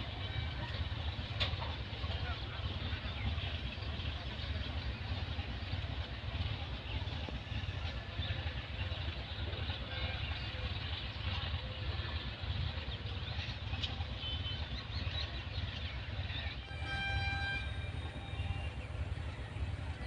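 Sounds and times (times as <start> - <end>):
train rumbling on track: 0.0 - 20.0
train horn: 0.1 - 1.0, 16.5 - 20.0.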